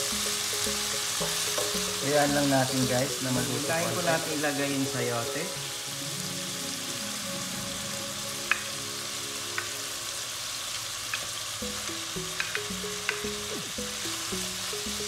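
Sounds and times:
food sizzling in oil: 0.0s - 15.0s
soft background music: 0.0s - 15.0s
spatula clicks: 12.3s - 13.3s.

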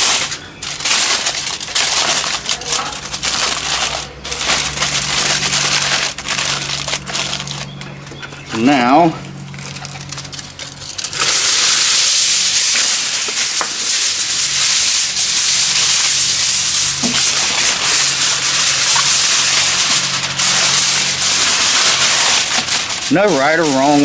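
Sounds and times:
aluminum foil crinkling: 0.0s - 24.0s.

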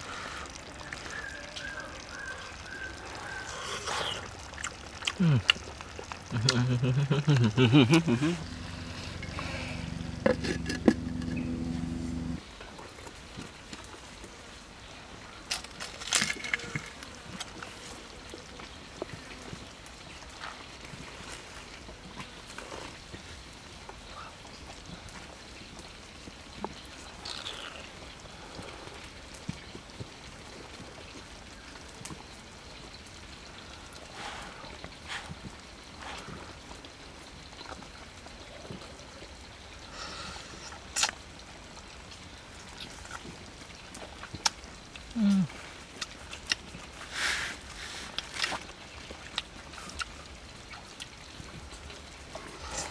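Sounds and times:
wet slurping of food: 3.2s - 11.0s.

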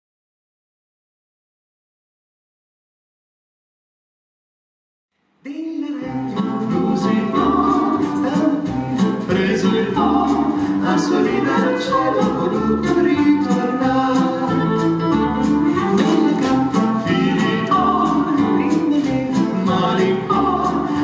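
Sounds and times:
vocal trio singing in harmony: 5.5s - 21.0s
swing band playing: 6.0s - 21.0s.

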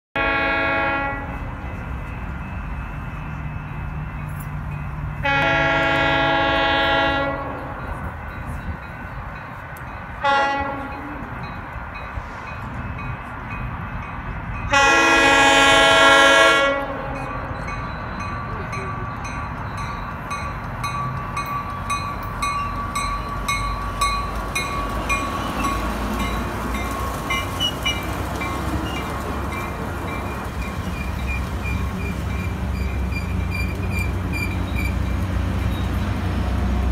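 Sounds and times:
train horn blasts: 0.2s - 1.6s, 5.2s - 7.8s, 10.2s - 11.3s, 14.7s - 17.5s
train wheels clicking over rail joints: 17.9s - 36.9s.

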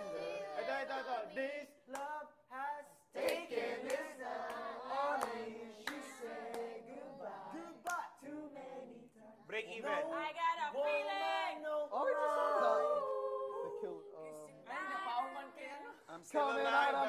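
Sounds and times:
group singing a cappella: 0.0s - 1.8s, 2.5s - 17.0s
hand claps: 1.9s - 2.2s, 3.2s - 6.7s.

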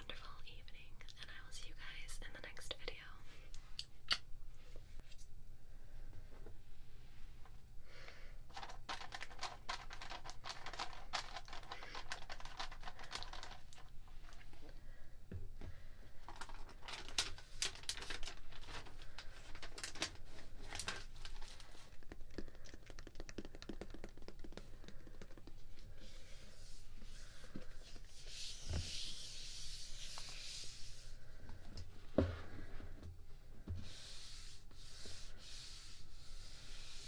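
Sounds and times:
packaging crinkling: 8.5s - 14.5s, 16.2s - 25.6s.

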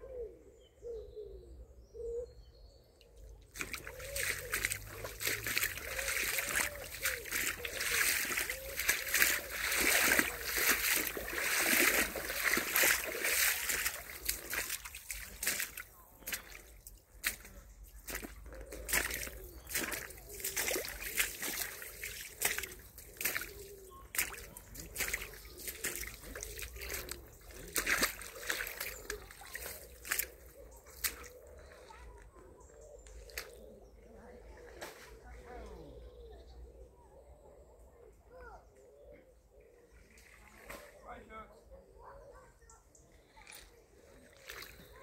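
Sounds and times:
water splashing and sloshing: 3.3s - 33.7s, 40.0s - 41.0s, 43.2s - 45.0s
feet wading through stream: 3.4s - 35.8s, 43.1s - 45.0s.

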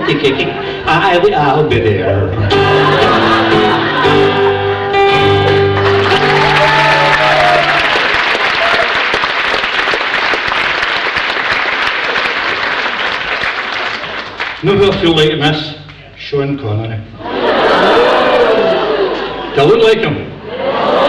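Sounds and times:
guitar backing music: 1.8s - 7.6s
audience applause: 5.1s - 14.6s.

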